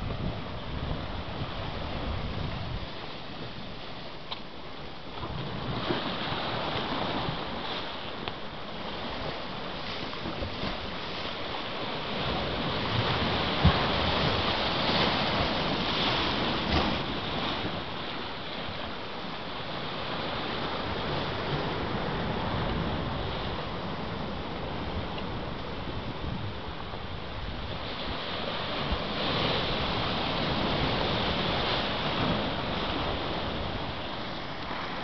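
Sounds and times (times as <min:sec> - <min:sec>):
wind buffeting microphone: 0:00.0 - 0:03.8, 0:20.4 - 0:35.0
surf churning over rocks: 0:00.0 - 0:35.0.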